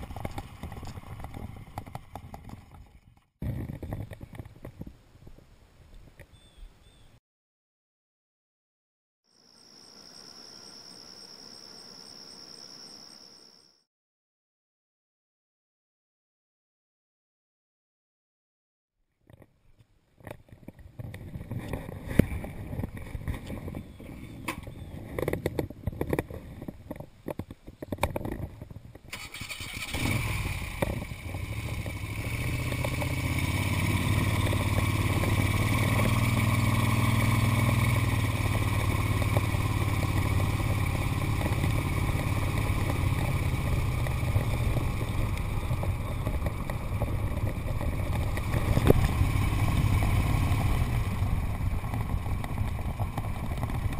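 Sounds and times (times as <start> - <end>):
motorcycle engine starting and running: 0.0 - 4.5, 27.9 - 53.9.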